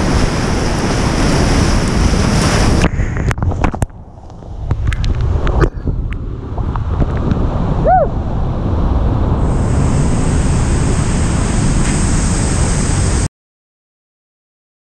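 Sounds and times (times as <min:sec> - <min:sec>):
wind buffeting microphone: 0:00.0 - 0:13.3
steady high hiss: 0:09.4 - 0:13.3.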